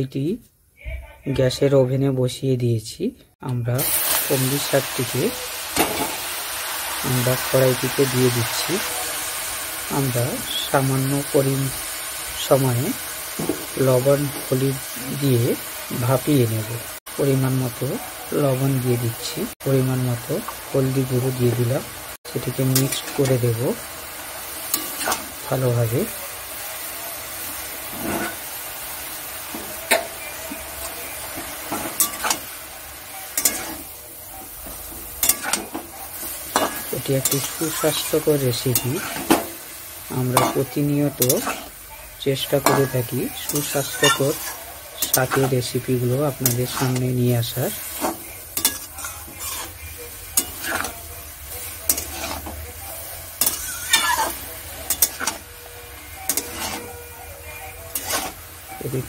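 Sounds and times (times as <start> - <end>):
greens hissing in hot pan: 3.8 - 59.0
spatula scraping and clacking pan: 24.7 - 25.4, 27.9 - 28.5, 29.4 - 32.5, 33.3 - 33.9, 34.6 - 39.6, 40.3 - 41.8, 42.5 - 49.8, 50.4 - 51.0, 51.6 - 52.6, 53.3 - 55.5, 56.2 - 57.0, 57.9 - 58.4.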